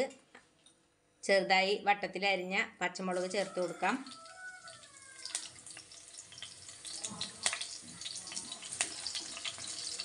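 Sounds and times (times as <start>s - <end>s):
chillies sizzling in hot oil: 3.1s - 10.0s.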